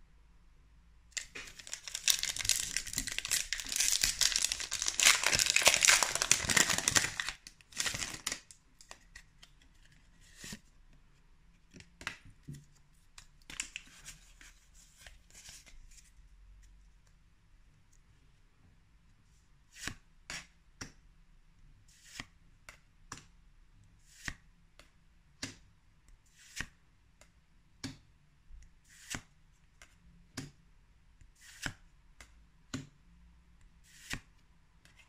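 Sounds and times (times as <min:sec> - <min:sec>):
foil wrapper crinkling and tearing: 0:01.2 - 0:09.0
cards being slid and handled: 0:08.9 - 0:10.6, 0:19.7 - 0:20.5, 0:21.9 - 0:22.3, 0:24.0 - 0:24.4, 0:26.3 - 0:26.8, 0:28.8 - 0:29.9, 0:31.4 - 0:31.8, 0:33.8 - 0:35.0.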